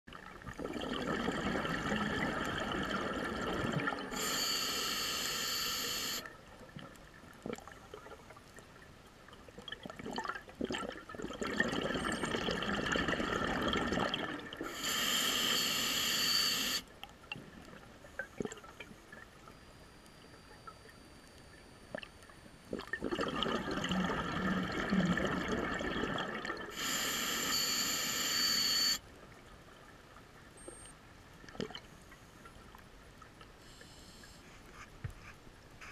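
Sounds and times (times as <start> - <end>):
bubbling exhaust underwater: 0.1 - 8.2, 9.6 - 18.9, 22.7 - 29.0
hissing breath through regulator: 4.0 - 6.3, 14.6 - 16.9, 26.7 - 29.0, 33.6 - 35.9.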